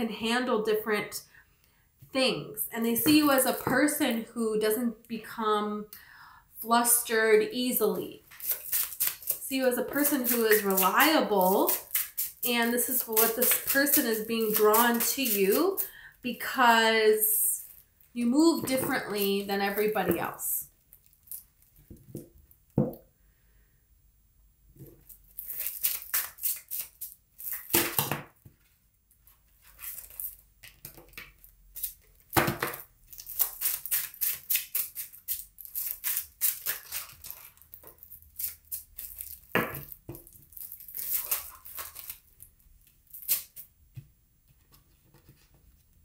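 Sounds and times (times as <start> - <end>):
cards being shuffled: 8.3 - 16.0, 18.6 - 20.4, 29.2 - 42.3.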